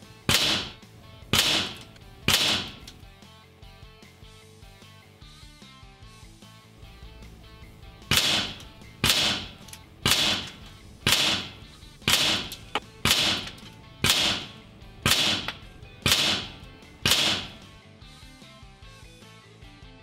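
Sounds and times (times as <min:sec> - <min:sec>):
background music: 0:00.0 - 0:20.0
air rifle firing sharp cracks: 0:00.2 - 0:03.0, 0:08.0 - 0:17.8.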